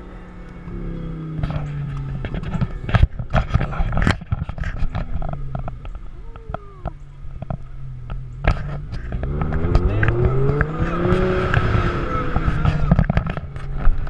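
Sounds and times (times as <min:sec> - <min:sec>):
car engine humming at low revs: 0:00.0 - 0:14.0
camera handling knocks and rustles: 0:02.2 - 0:06.0.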